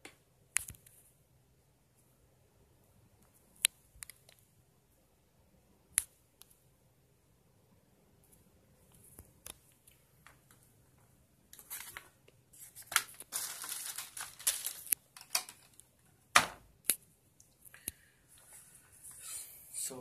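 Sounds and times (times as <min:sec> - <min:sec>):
plastic bag crinkling: 0:11.6 - 0:15.8.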